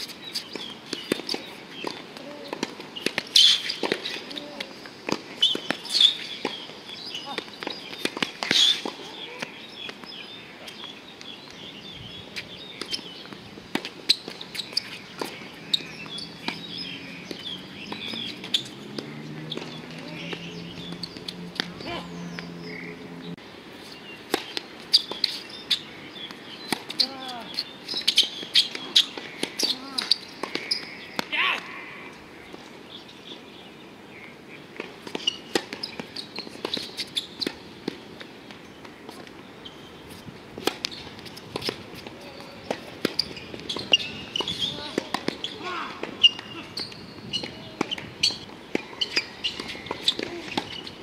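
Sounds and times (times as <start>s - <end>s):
tennis ball bounces: 0.0s - 10.2s, 12.8s - 23.4s, 26.2s - 31.3s, 34.8s - 39.4s, 40.6s - 50.9s
birds chirping: 0.0s - 40.2s, 42.0s - 51.0s
tennis ball struck by rackets: 13.7s - 23.2s, 40.6s - 50.9s.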